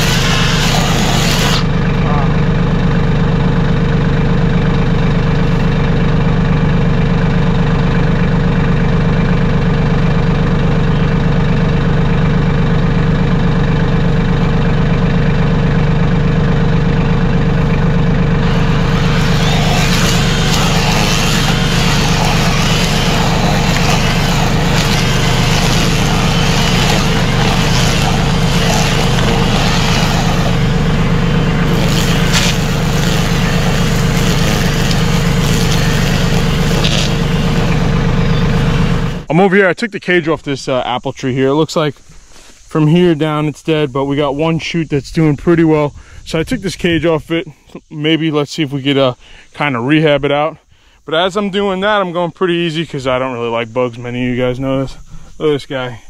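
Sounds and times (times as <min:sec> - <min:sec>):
tractor diesel engine running: 0:00.0 - 0:44.4.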